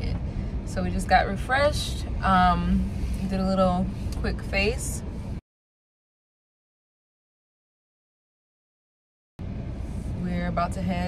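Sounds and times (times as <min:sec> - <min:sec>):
car engine and road rumble: 0:00.0 - 0:05.4, 0:09.4 - 0:11.0.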